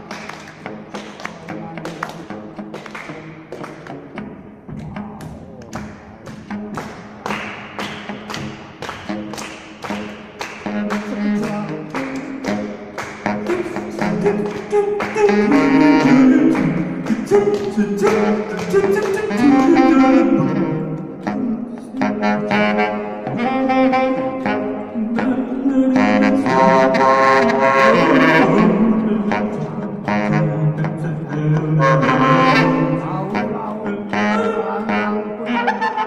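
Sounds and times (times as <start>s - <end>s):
jazz saxophone improvising: 9.1s - 36.0s.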